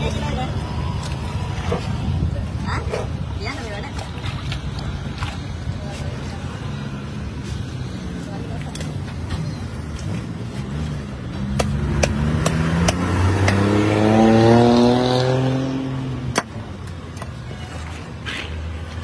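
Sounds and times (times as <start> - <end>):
vehicle accelerating past: 11.7 - 16.2.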